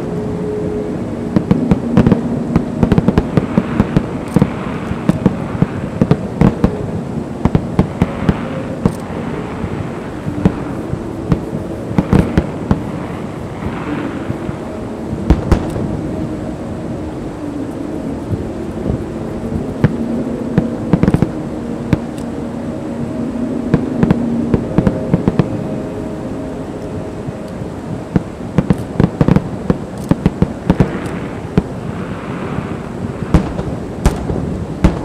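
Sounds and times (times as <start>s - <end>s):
fireworks rumble of bursts: 0.0s - 35.0s
sharp firework bangs: 32.6s - 35.0s.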